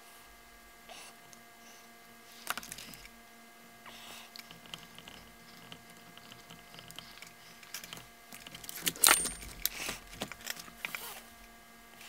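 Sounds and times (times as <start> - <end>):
metallic clicks and rattles: 4.4 - 11.1.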